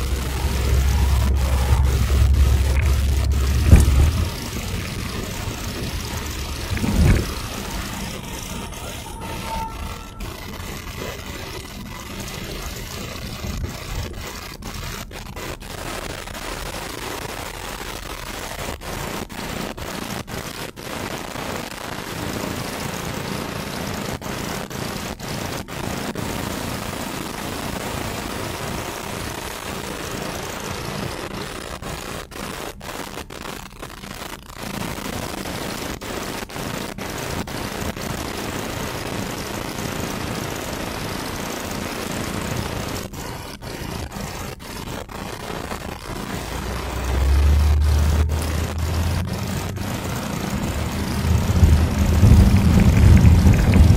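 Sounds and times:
deep rumble: 0.0 - 12.2, 46.5 - 53.9
road and engine noise in car: 0.0 - 53.9.

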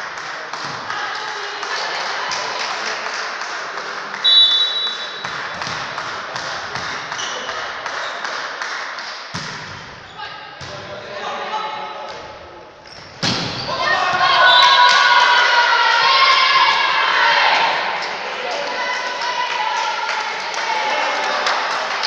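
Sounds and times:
players' voices: 0.0 - 22.0
referee's whistle blast: 4.2 - 5.3.

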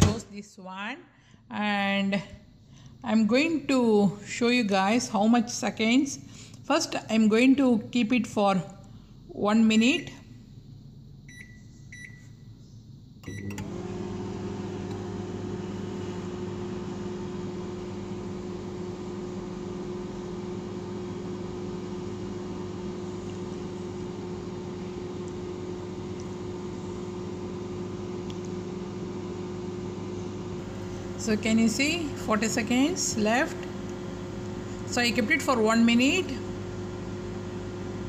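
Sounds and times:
microwave oven humming: 9.5 - 38.0
microwave keypad beep: 11.3 - 12.3, 13.3 - 13.6.

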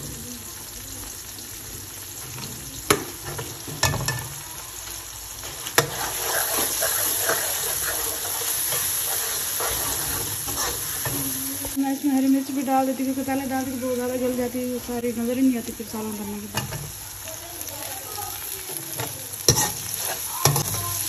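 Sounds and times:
masala sizzling in pan: 0.0 - 21.0
ladle stirring: 5.4 - 11.8, 19.0 - 20.9.

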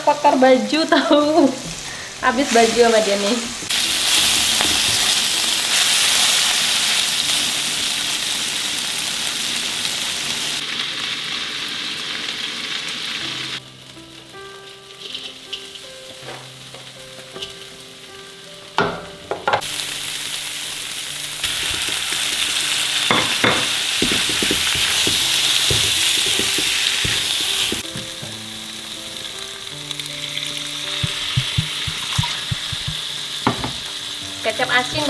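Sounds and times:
food sizzling in a wok: 0.0 - 35.0
metal spatula scraping a pan: 15.0 - 15.8.

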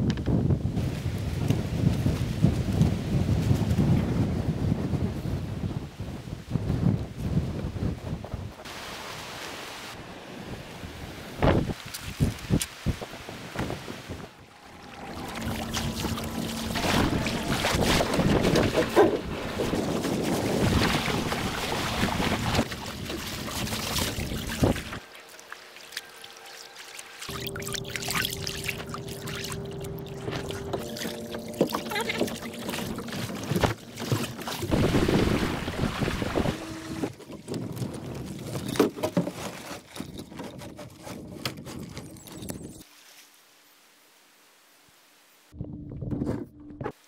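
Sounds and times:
wind buffeting microphone: 0.0 - 8.7, 10.4 - 25.0, 34.6 - 38.8
water splashing along a hull: 11.0 - 42.9.

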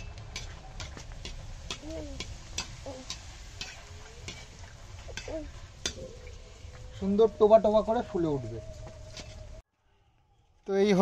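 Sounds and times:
metal skimmer stirring in a pan: 0.0 - 6.3
food deep-frying in hot oil: 0.0 - 6.4.

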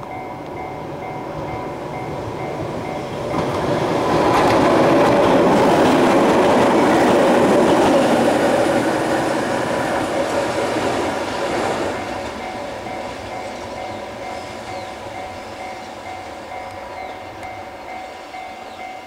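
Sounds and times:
level crossing bell ringing: 0.0 - 3.8, 12.0 - 19.0
train passing close by: 0.0 - 19.0.

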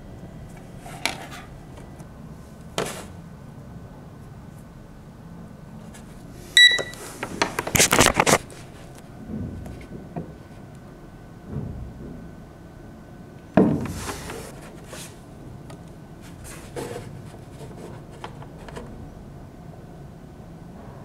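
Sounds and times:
rubbing on table: 13.8 - 15.2.

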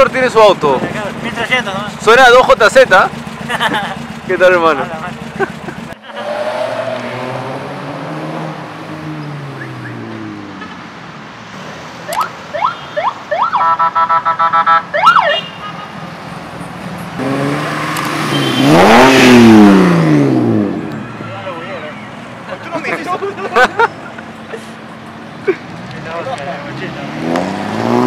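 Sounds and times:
car engine revving: 0.0 - 10.6, 16.2 - 21.1, 25.0 - 28.0
cars driving past: 0.0 - 28.0
electronic siren whoops and warbling: 12.1 - 15.4.

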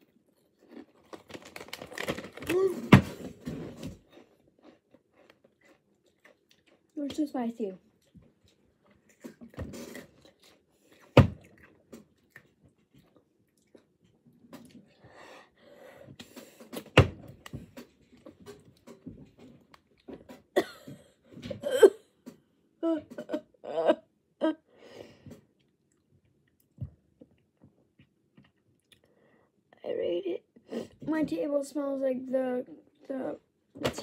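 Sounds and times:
crisps being crunched: 0.1 - 2.9
chip bag crackling: 0.6 - 2.7.

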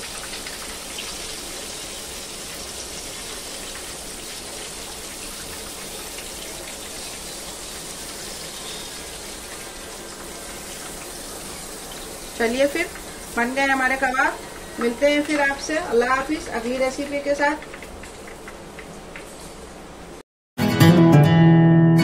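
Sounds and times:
oil sizzling: 0.0 - 20.2.

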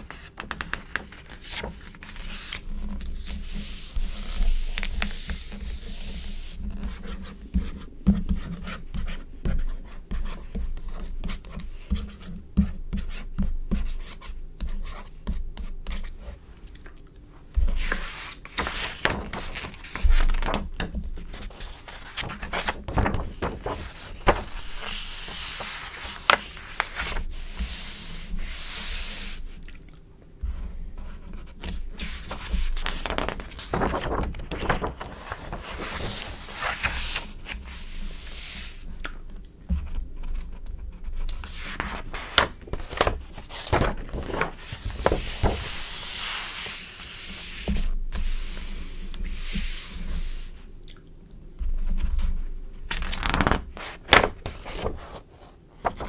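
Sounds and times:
pages flipping: 0.0 - 6.1, 17.6 - 29.4, 31.6 - 39.2, 39.8 - 50.5, 51.8 - 55.2, 55.8 - 56.0
hands rubbing magazine pages: 21.2 - 29.5, 41.4 - 50.5.

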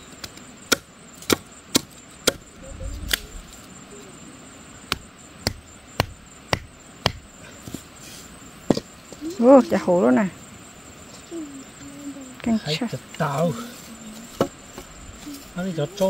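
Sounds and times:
machete chopping bamboo: 0.7 - 2.4, 4.9 - 7.2
stone hammering stakes: 0.7 - 2.4, 4.9 - 7.2.

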